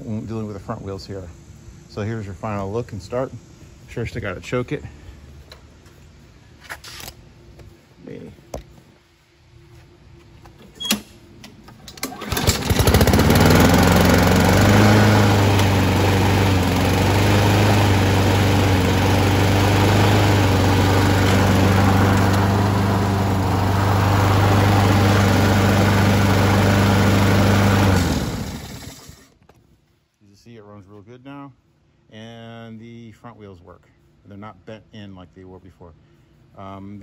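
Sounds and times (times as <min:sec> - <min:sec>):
lawn mower engine running: 0:10.6 - 0:29.4
recoil starter pull rattle: 0:11.7 - 0:14.7.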